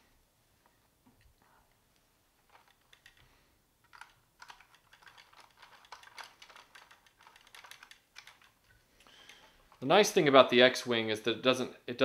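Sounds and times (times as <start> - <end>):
plastic toy clicking when handled: 2.5 - 9.5.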